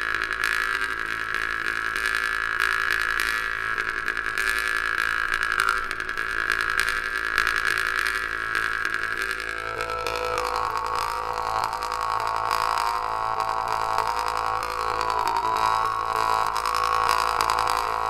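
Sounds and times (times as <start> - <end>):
jaw harp playing: 9.2 - 18.0.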